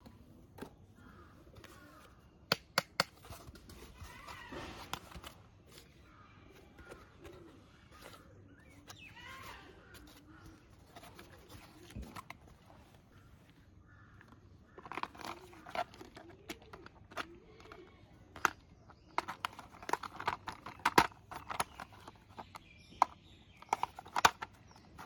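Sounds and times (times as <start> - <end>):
faint birds calling: 0.0 - 25.0
plastic scraping and knocking: 0.0 - 25.0
plastic toy parts clicking: 14.2 - 25.0.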